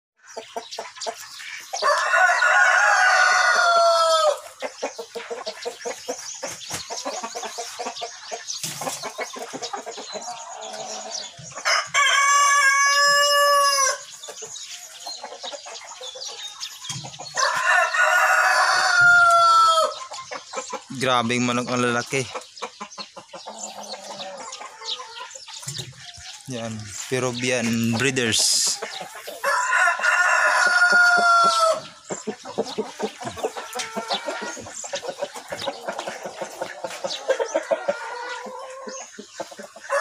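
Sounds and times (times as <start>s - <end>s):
hens clucking: 0.2s - 40.0s
roosters crowing: 1.7s - 4.7s, 10.0s - 14.3s, 16.6s - 20.1s, 23.4s - 40.0s.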